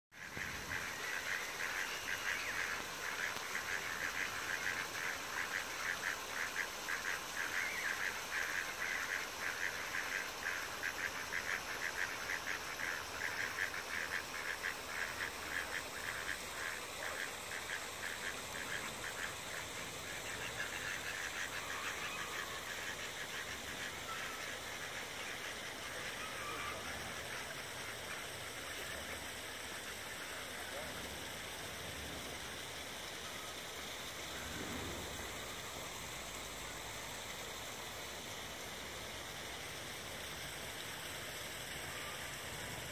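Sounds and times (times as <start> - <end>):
ducks calling: 0.2 - 30.9
steady background hiss: 0.2 - 42.9.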